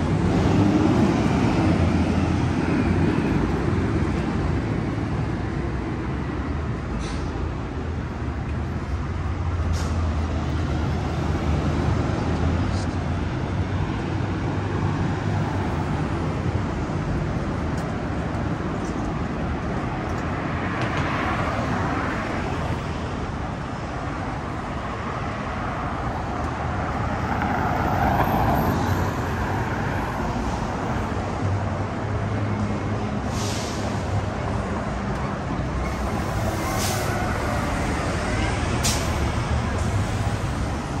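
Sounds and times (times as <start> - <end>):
cars passing: 0.0 - 41.0
low traffic rumble: 0.0 - 41.0
bus air brakes hissing: 6.9 - 7.5, 9.6 - 10.2, 33.2 - 34.6, 35.8 - 40.7.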